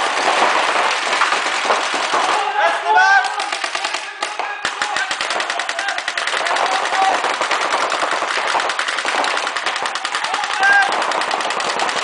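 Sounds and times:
faint shouts: 2.2 - 7.2, 10.0 - 11.0
paintball markers firing rapidly: 3.2 - 12.0.

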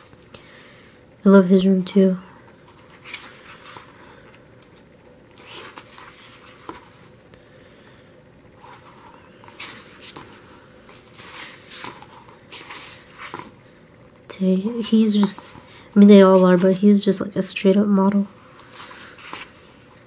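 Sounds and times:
pages turning: 2.5 - 7.2, 8.6 - 13.6, 18.1 - 20.0.

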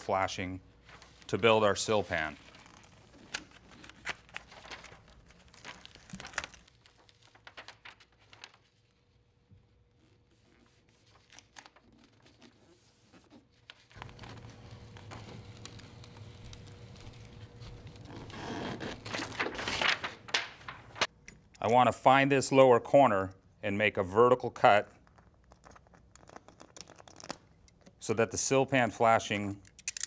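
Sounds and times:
flashing membrane crinkling and tearing: 2.1 - 9.1, 13.6 - 21.1, 25.0 - 27.6.

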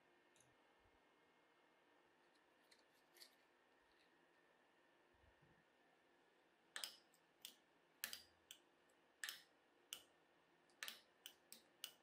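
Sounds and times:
staples snapping off with clicks: 6.7 - 8.6, 9.2 - 10.1, 10.7 - 12.0.

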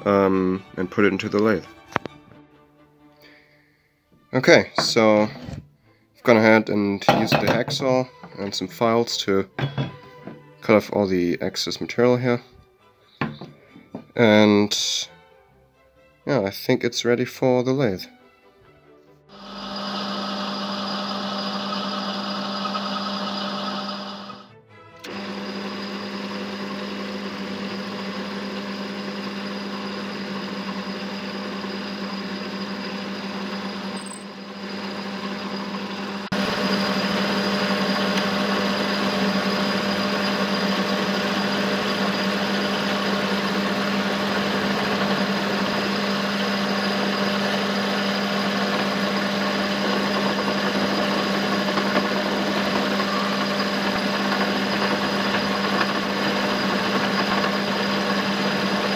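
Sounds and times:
lathe cutting metal: 19.3 - 58.9
metal lathe motor hum: 19.3 - 58.9.

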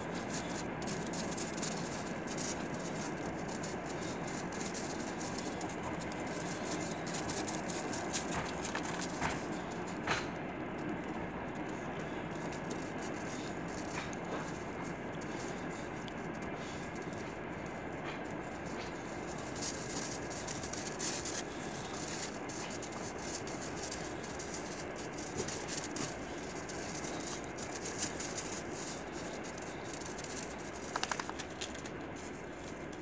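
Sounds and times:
dog paws crunching on snow: 0.0 - 33.0
steady background noise: 0.0 - 33.0
rattle of clicks: 26.9 - 32.0.

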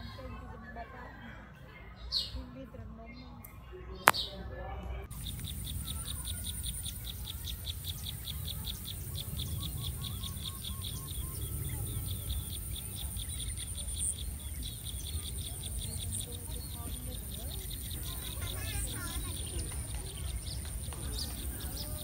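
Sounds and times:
rapid even chirping: 5.1 - 22.0.

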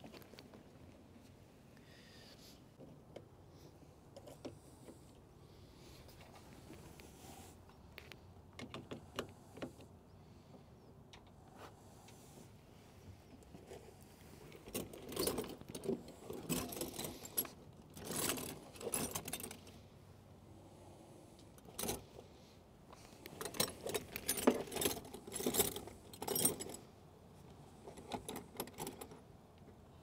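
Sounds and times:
metal cables and tool clinking: 14.5 - 19.9, 21.4 - 22.3, 22.9 - 26.9, 27.8 - 29.3.

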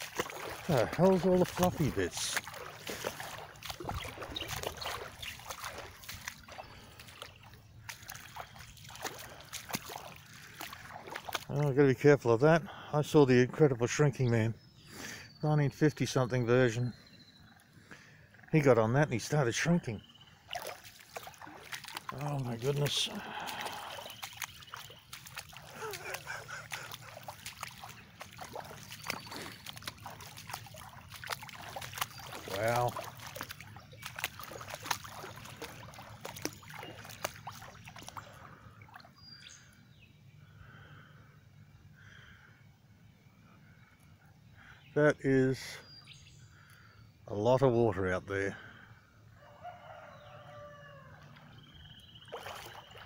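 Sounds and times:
small splashes and drips: 0.0 - 11.8, 20.3 - 39.8, 52.2 - 53.0
person wading through water: 0.0 - 13.0, 19.2 - 39.9, 50.2 - 53.0
floodwater running over ground: 0.0 - 14.0, 18.6 - 39.6, 52.3 - 53.0.

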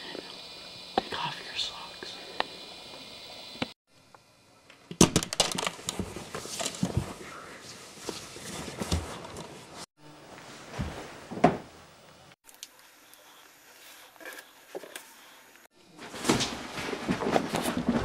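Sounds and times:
close rustling and handling: 5.5 - 9.9.

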